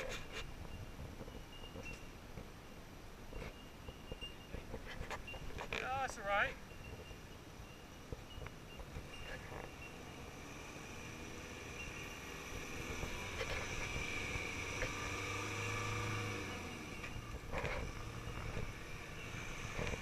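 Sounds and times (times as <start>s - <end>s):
vehicle engine running at low speed: 8.0s - 20.0s.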